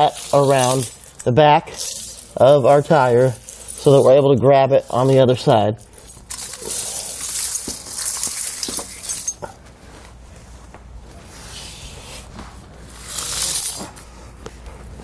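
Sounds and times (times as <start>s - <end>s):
snow chain jingling and clinking: 0.0s - 5.1s, 5.8s - 9.5s, 13.0s - 13.9s.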